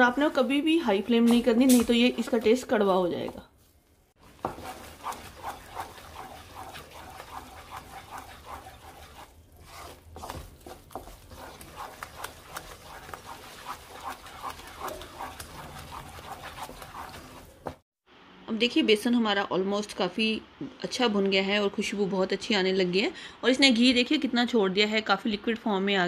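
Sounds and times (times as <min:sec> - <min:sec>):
wooden spatula scraping pan: 0:04.2 - 0:17.8.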